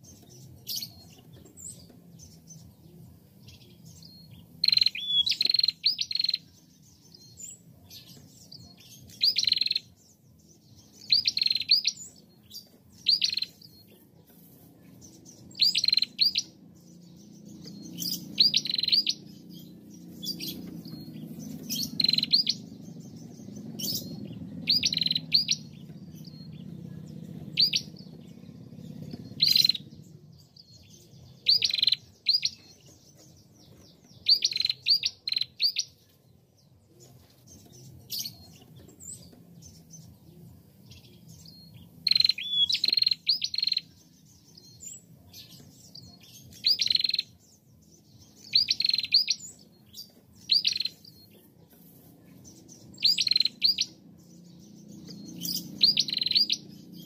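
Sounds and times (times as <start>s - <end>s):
bird chirping: 0.0s - 57.0s
faint low rumble: 16.5s - 31.5s.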